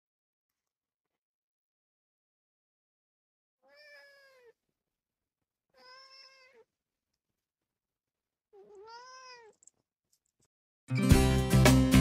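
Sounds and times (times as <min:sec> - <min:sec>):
cat meowing faintly: 0:03.6 - 0:04.6, 0:05.7 - 0:06.7, 0:08.5 - 0:09.6.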